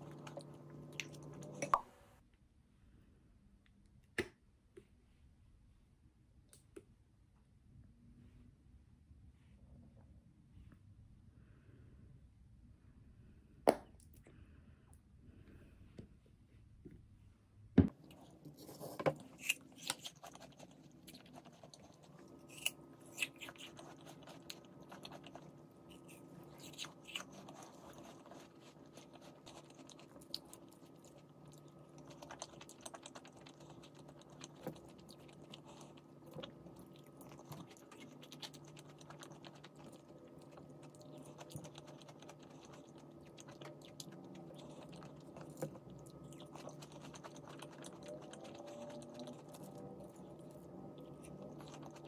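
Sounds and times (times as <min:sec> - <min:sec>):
chewing and crunching: 0:00.0 - 0:01.7, 0:17.9 - 0:52.0.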